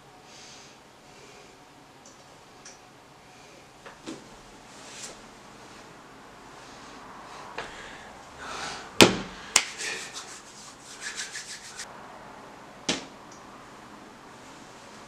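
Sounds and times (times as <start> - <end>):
rubbing and rustling handling: 9.6 - 11.9.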